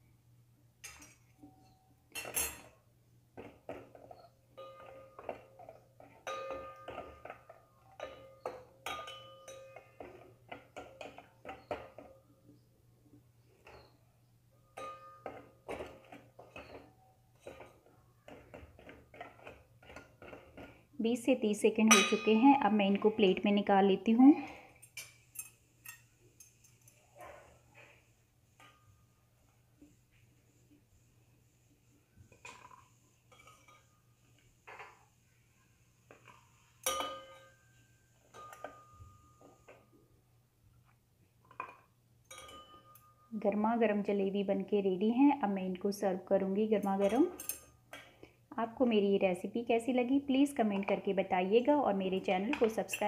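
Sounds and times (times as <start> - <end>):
spoon clinking against metal pan: 4.1 - 12.2, 14.6 - 20.4, 21.8 - 22.7, 36.8 - 39.8, 42.3 - 43.3, 46.8 - 47.8.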